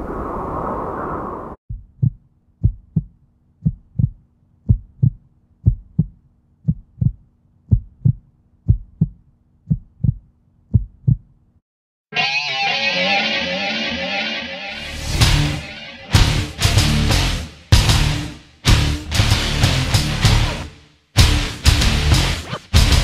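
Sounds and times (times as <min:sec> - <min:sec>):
heartbeat thumps: 0:01.7 - 0:11.3
loud whooshing: 0:13.3 - 0:17.5.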